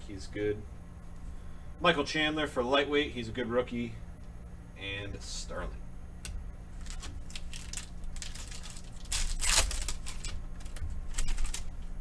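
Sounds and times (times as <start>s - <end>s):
foil wrapper tearing and crinkling: 6.8s - 11.8s.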